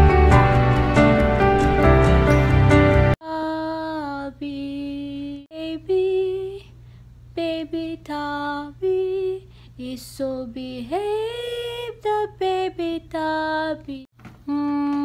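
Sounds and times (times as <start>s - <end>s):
background music: 0.0s - 3.2s
woman singing unaccompanied: 3.2s - 15.0s.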